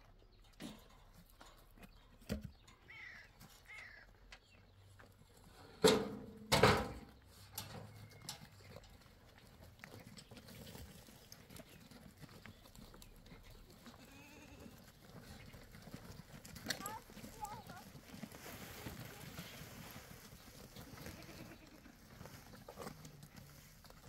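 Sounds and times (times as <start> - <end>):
goats bleating: 13.8 - 14.9, 20.9 - 22.1
rustling and small knocks: 14.9 - 21.5.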